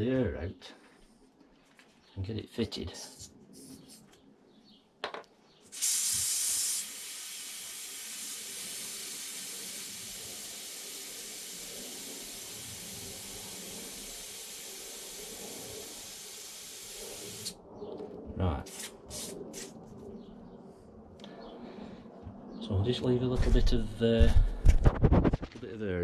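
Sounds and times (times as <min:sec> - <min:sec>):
air hissing from tyre valve: 0:05.7 - 0:17.6.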